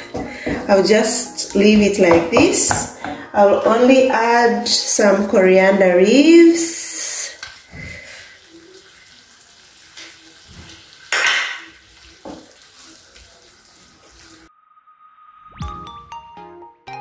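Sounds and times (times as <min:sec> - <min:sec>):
music: 0:00.0 - 0:06.6, 0:15.5 - 0:17.0
faint sizzle: 0:04.6 - 0:14.5.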